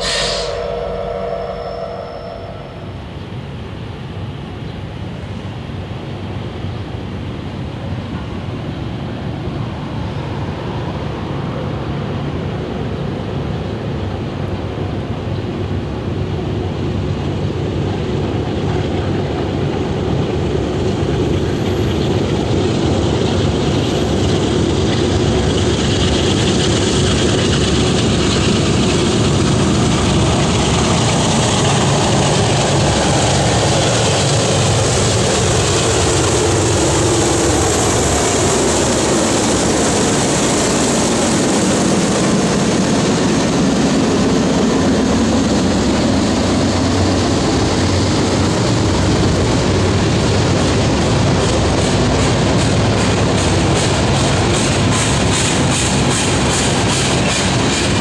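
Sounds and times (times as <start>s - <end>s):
diesel locomotives passing: 0.0s - 58.0s
tank cars rumbling on rails: 12.2s - 58.0s.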